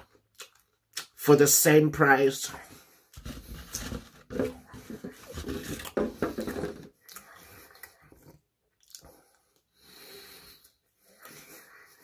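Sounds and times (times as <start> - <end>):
foam container rubbing and squeaking: 3.2 - 6.6.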